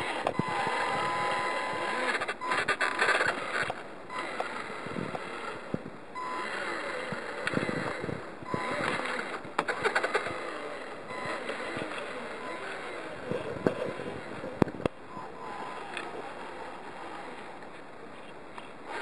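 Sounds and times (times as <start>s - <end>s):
electric motor and gearbox whining: 0.0s - 17.6s
quick clicks: 6.4s - 14.0s.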